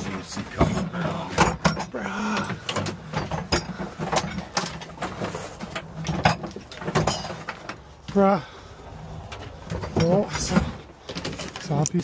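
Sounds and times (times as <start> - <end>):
hard plastic knocking and clattering: 0.0 - 7.8.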